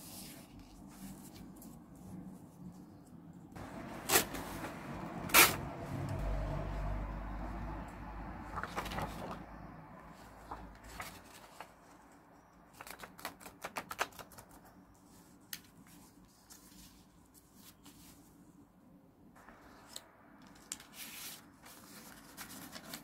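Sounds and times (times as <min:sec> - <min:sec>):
paper rustling: 0:00.0 - 0:02.8, 0:03.8 - 0:05.6, 0:08.4 - 0:09.4, 0:10.1 - 0:18.4, 0:19.5 - 0:23.0.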